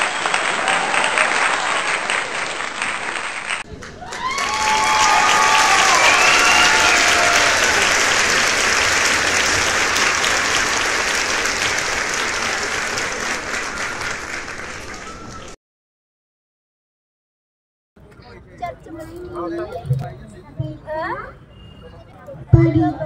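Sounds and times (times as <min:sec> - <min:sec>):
audience applauding: 0:00.0 - 0:15.6.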